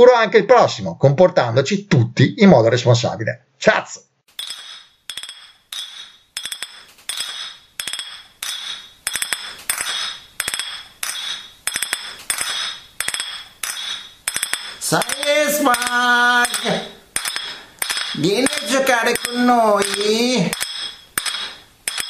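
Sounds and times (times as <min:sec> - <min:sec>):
spoon clinking against a mug: 0:04.4 - 0:22.0
person singing a drawn-out call: 0:15.0 - 0:16.9.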